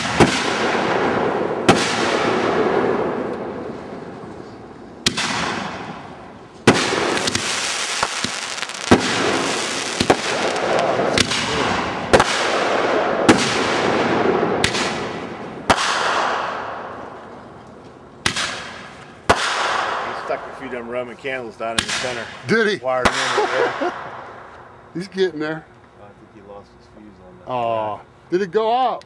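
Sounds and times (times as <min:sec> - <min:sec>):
fireworks bangs: 0:00.0 - 0:20.9, 0:23.0 - 0:24.6.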